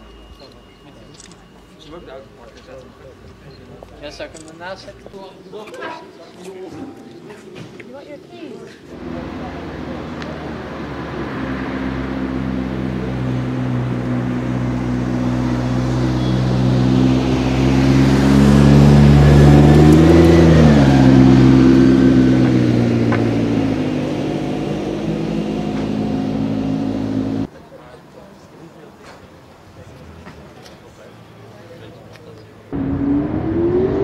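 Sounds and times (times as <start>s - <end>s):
sports car engine driving past: 8.9s - 27.5s, 32.7s - 34.0s.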